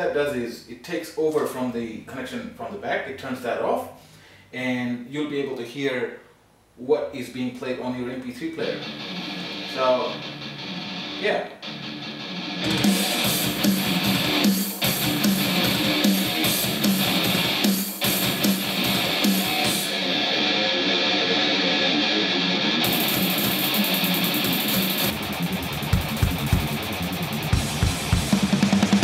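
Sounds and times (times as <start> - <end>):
guitar music through speakers: 8.6 - 29.0
deep drum beats: 25.1 - 29.0.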